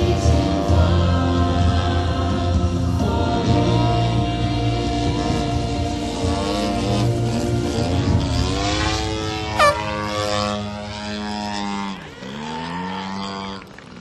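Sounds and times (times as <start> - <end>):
model plane motor: 6.2 - 14.0.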